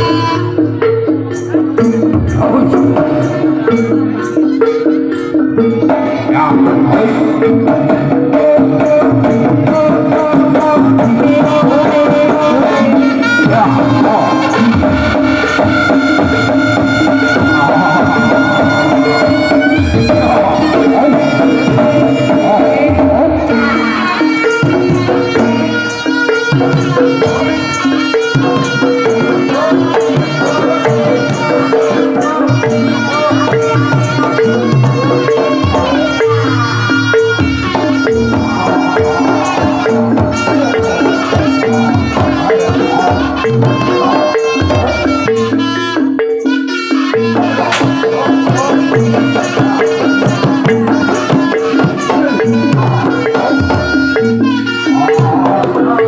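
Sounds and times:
drum strokes: 0.0 - 56.0
gongs and metallophones melody: 0.0 - 56.0
sharp metallic strikes: 47.6 - 50.0.

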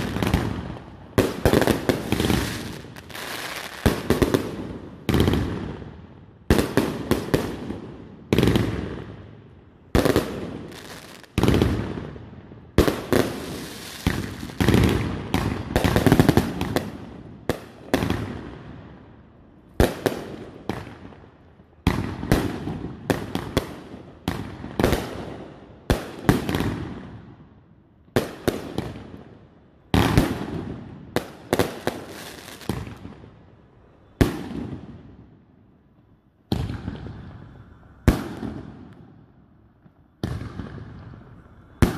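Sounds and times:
fireworks bangs: 0.0 - 19.0, 36.5 - 41.9.

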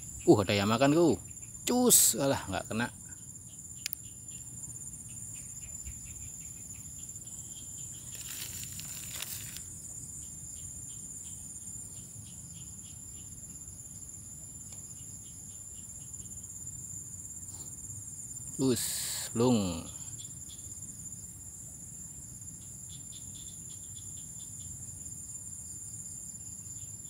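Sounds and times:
insects chirring: 0.0 - 27.0
brief rustling: 8.0 - 9.7.

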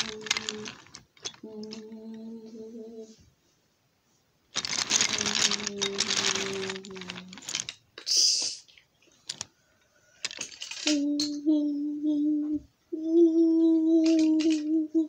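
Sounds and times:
toy train clattering on track: 0.0 - 2.1, 4.6 - 7.8, 9.3 - 9.5, 10.2 - 11.4, 14.0 - 14.8
child humming: 1.4 - 3.2, 10.8 - 15.0.

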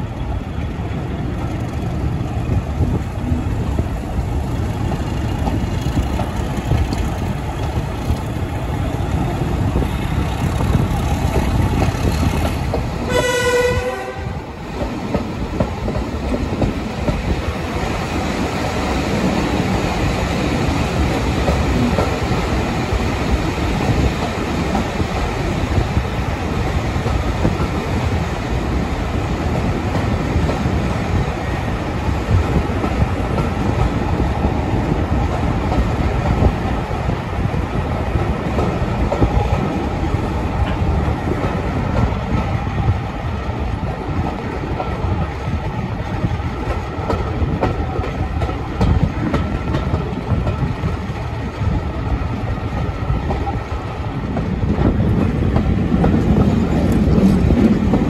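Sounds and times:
train wheels rumbling: 0.0 - 58.0
locomotive horn: 13.1 - 14.5.

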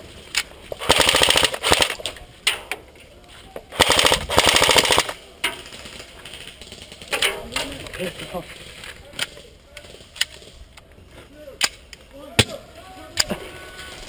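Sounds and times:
airsoft gun full-auto bursts: 0.8 - 2.0, 3.7 - 5.2.

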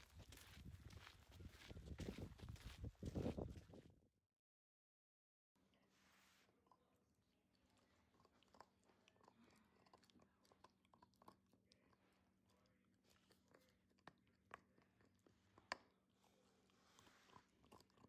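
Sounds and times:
dog teeth gnawing chew: 7.8 - 12.0, 17.3 - 18.0.

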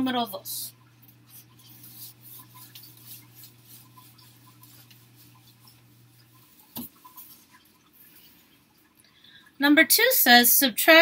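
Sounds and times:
steady low hum: 0.0 - 9.6
eraser rubbing whiteboard: 1.2 - 7.6.

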